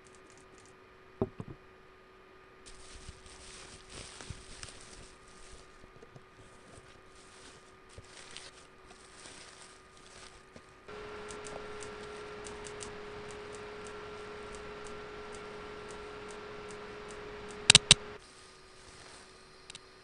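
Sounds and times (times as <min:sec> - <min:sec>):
electrical hum: 0:10.9 - 0:18.2
faint ticks: 0:10.9 - 0:18.2.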